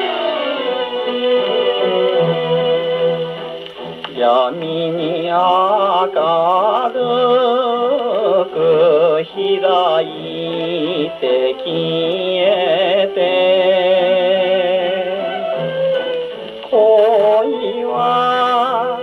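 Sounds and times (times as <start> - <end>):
man singing on gramophone record: 4.1 - 15.7, 16.6 - 19.0.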